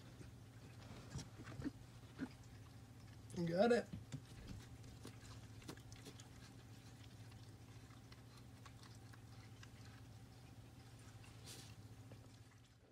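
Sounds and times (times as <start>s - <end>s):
low steady hum: 0.0s - 12.9s
animal chewing wet clicks: 4.0s - 12.9s.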